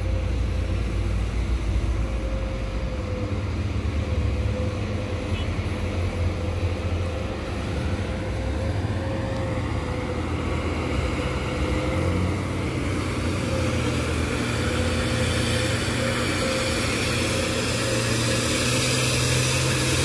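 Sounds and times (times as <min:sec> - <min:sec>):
truck diesel engine drone: 0:00.0 - 0:20.0
thin whine: 0:13.2 - 0:20.0.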